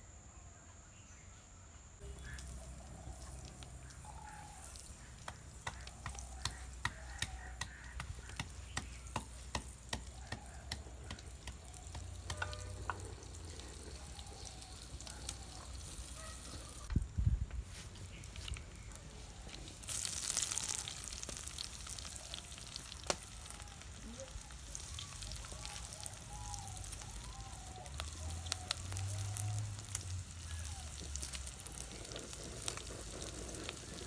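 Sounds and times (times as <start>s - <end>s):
faint steady background noise: 0.0s - 34.0s
wooden pestle pounding in mortar: 5.2s - 12.5s.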